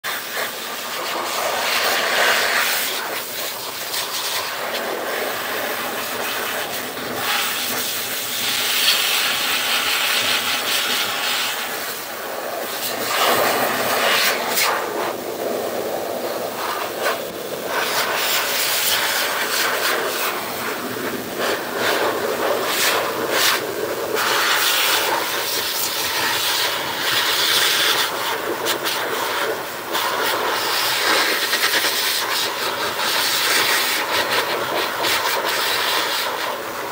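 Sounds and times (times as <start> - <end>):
grooming blower rushing air: 0.0 - 36.9.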